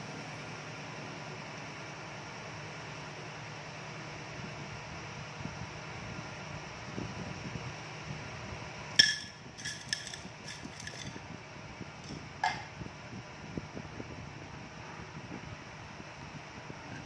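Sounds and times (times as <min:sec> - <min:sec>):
hard objects clinking: 0:09.0 - 0:11.2.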